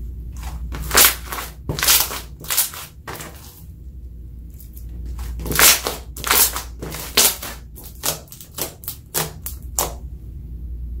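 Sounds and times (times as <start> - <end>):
slime popping and squelching: 0.4 - 3.6, 5.1 - 10.0.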